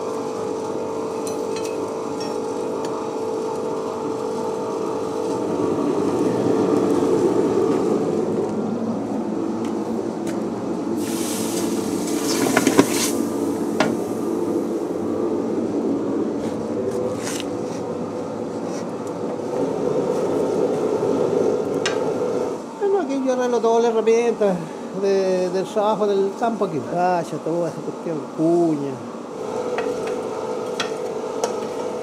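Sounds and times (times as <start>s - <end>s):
forge air blast drone: 4.7s - 18.6s, 19.2s - 22.8s.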